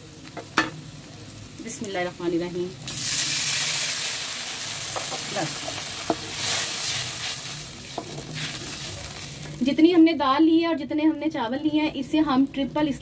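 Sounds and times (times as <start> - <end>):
loud hissing sizzle: 0.0 - 9.9
onions frying in fat: 0.0 - 13.0
wooden spoon knocking on pan: 4.9 - 6.3.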